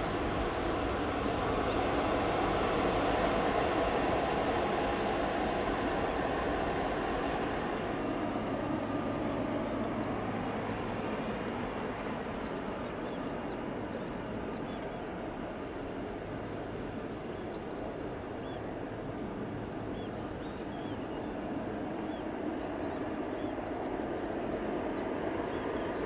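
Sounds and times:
jet engines rumbling: 0.0 - 26.0.

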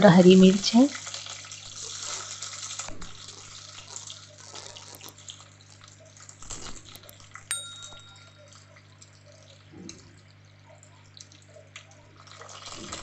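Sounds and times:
onions sizzling in hot oil: 0.0 - 6.4
metallic clink: 7.0 - 8.5.

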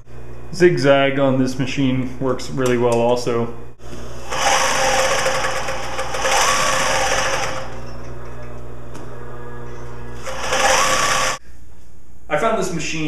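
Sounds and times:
sewing machine motor humming: 3.9 - 8.2, 9.1 - 11.4
sewing machine stitching: 4.3 - 7.8, 10.2 - 11.4.

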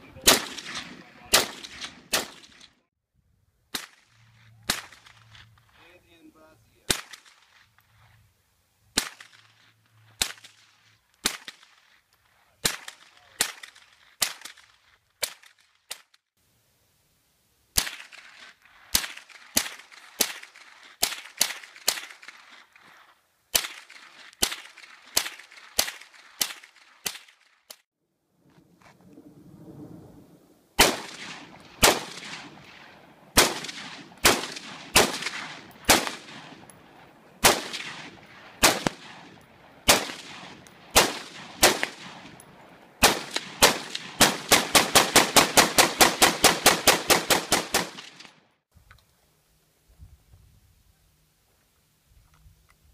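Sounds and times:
rifle shots with echo: 0.0 - 2.8, 3.7 - 5.3, 6.9 - 7.6, 8.9 - 9.5, 12.6 - 15.6, 30.8 - 48.4.

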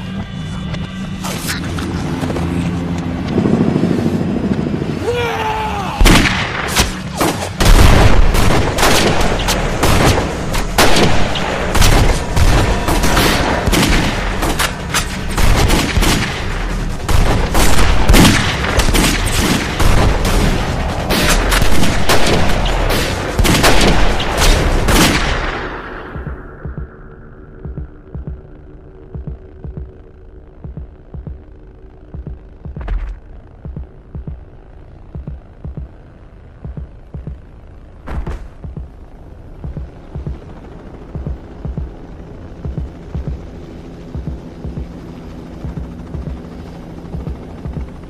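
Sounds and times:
rapid gunshots: 6.0 - 25.6.

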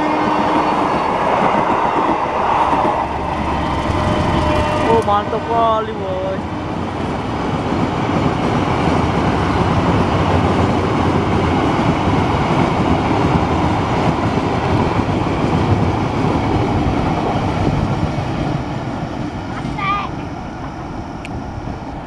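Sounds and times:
train wheels running on rails: 0.0 - 22.0.

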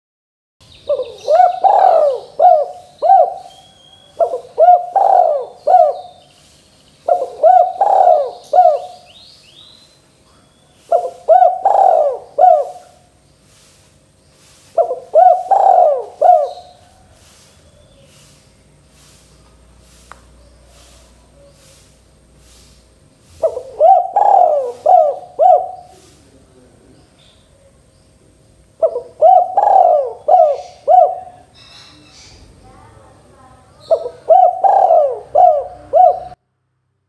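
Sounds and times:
dove cooing: 0.8 - 6.3, 7.0 - 9.2, 10.8 - 13.1, 14.8 - 17.4, 23.3 - 26.8, 28.8 - 31.6, 33.8 - 36.4.

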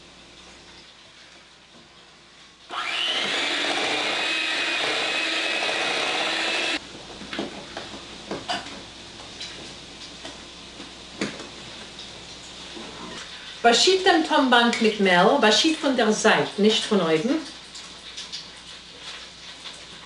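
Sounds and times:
electric hand mixer running: 2.7 - 6.8.

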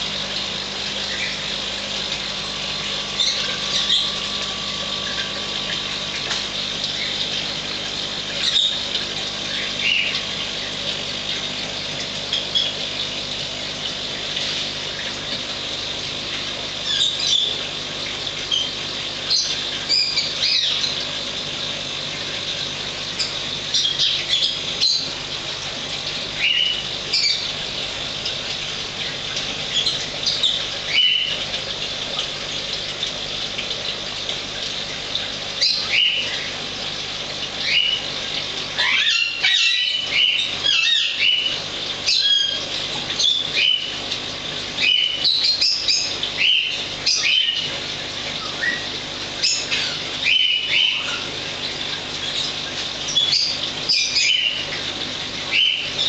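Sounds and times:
birds chirping: 1.0 - 7.4, 28.2 - 31.5, 48.4 - 51.4, 52.2 - 56.0.

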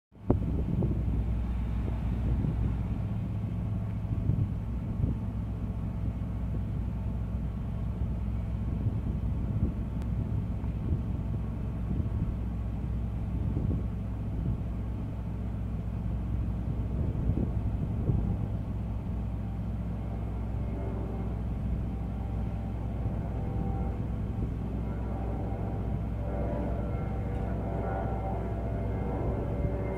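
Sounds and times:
engine running: 0.2 - 29.9.

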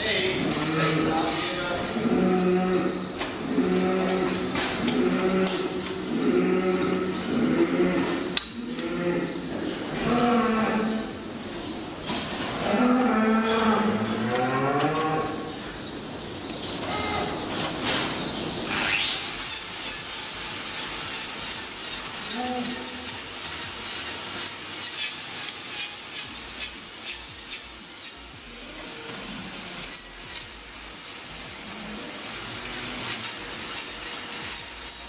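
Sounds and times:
cow mooing: 2.0 - 9.4, 10.0 - 11.1, 12.6 - 15.4
angle grinder hiss: 18.9 - 35.0.

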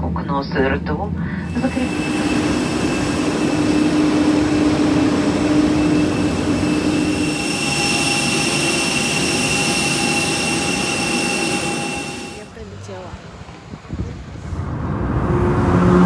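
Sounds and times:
jet turbine whine: 0.0 - 13.9
low steady tone: 1.3 - 12.9
high whistling tones: 1.4 - 12.6.

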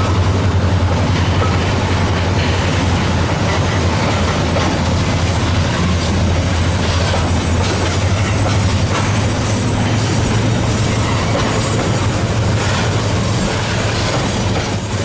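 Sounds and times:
freight wagons rumbling on rails: 0.0 - 15.0.

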